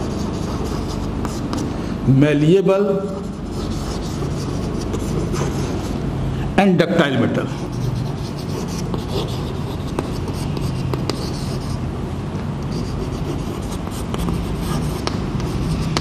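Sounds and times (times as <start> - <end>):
chalk scratching on chalkboard: 0.0 - 1.8, 3.0 - 6.0, 7.5 - 11.8, 12.7 - 16.0
steady low hum: 0.0 - 16.0.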